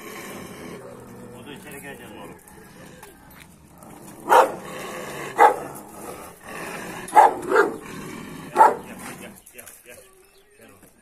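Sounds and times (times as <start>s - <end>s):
dog barking: 4.2s - 4.7s, 5.4s - 5.7s, 7.1s - 7.8s, 8.6s - 8.9s.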